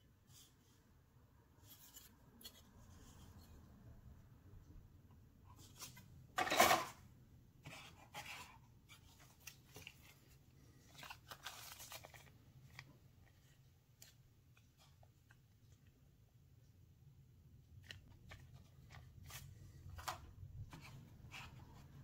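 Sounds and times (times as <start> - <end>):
plastic parts clattering: 6.4 - 7.0.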